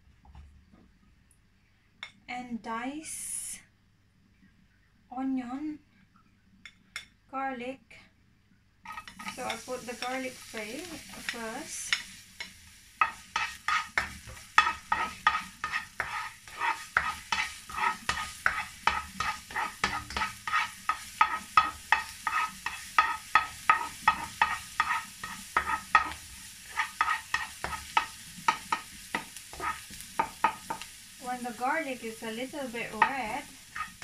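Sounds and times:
garlic frying in oil: 8.8 - 34.0
spatula scraping a wok: 8.9 - 31.8, 32.4 - 34.0.

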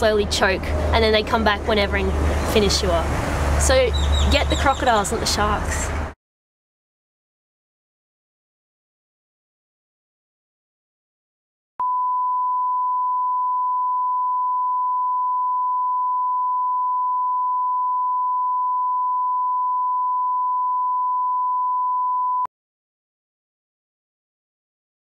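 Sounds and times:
sine-wave test tone: 11.8 - 22.5.

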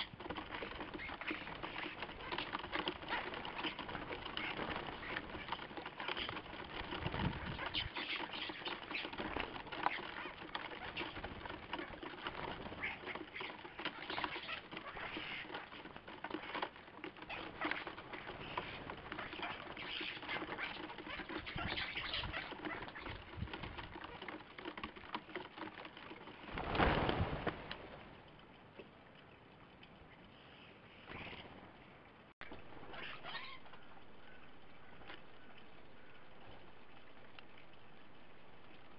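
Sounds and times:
starlings chattering and clicking: 0.0 - 26.8, 32.4 - 37.5
wings flapping: 0.0 - 29.0, 31.0 - 38.9
rush of wings: 26.4 - 28.2.

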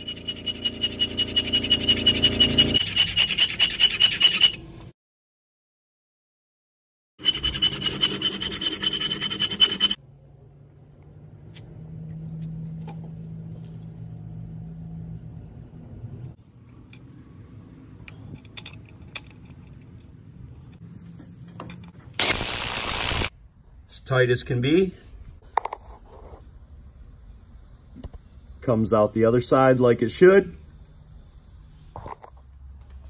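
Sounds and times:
hacksaw cutting metal: 0.0 - 4.6, 7.2 - 10.0
loud burst: 22.2 - 23.3.

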